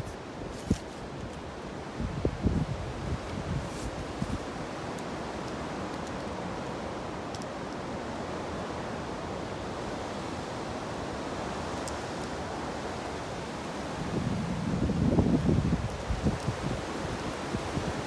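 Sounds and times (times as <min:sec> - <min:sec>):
wind gust rumbling on microphone: 0:00.0 - 0:04.8, 0:12.4 - 0:18.0
wind hissing through trees: 0:00.0 - 0:18.0.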